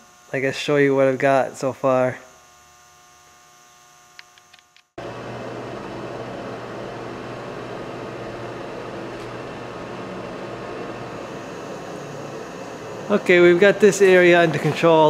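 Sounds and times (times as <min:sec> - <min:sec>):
fan running: 0:00.0 - 0:02.8, 0:05.0 - 0:15.0
small clicks: 0:04.1 - 0:04.9.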